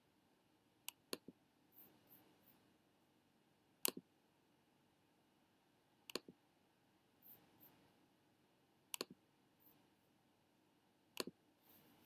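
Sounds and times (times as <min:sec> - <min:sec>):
computer mouse clicks: 0:00.8 - 0:02.3, 0:03.8 - 0:04.1, 0:06.1 - 0:06.4, 0:08.9 - 0:09.2, 0:11.1 - 0:11.4.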